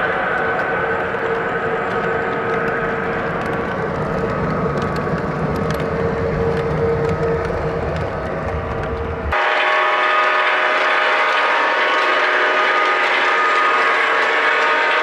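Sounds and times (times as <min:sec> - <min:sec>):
wheels ticking on track: 0:00.0 - 0:09.4
model train rumble and hum: 0:00.0 - 0:15.0.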